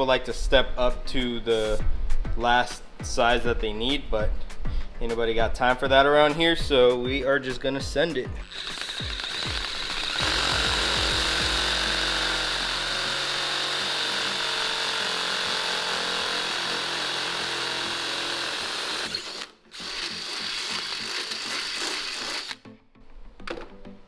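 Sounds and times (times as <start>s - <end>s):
electric drill whining through metal: 8.4s - 22.6s.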